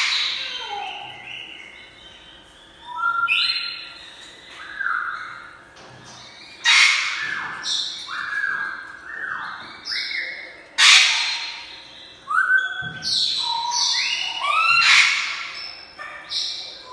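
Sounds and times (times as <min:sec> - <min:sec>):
parrot harsh squawks: 0:06.6 - 0:07.6, 0:10.8 - 0:11.7, 0:14.3 - 0:16.3.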